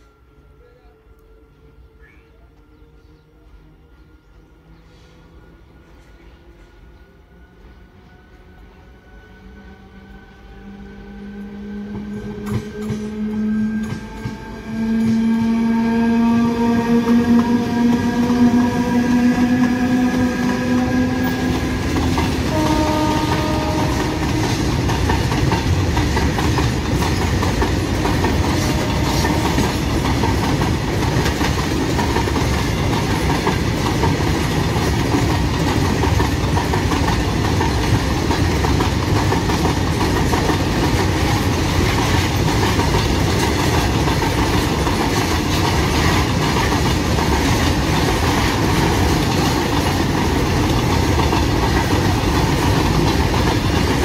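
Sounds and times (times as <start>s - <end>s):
locomotive horn: 11.3s - 25.5s, 27.8s - 30.5s
freight wagons rolling over rails: 11.9s - 54.0s.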